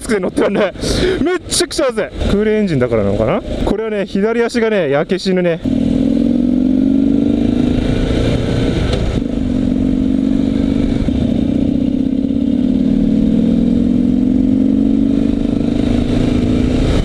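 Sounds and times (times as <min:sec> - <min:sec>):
motorcycle engine running: 0:05.6 - 0:17.0.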